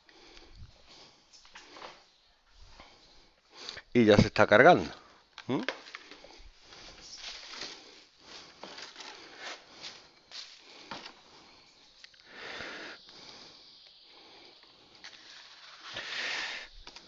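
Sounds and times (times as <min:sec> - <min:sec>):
cardboard packaging rustling: 0:06.9 - 0:11.2.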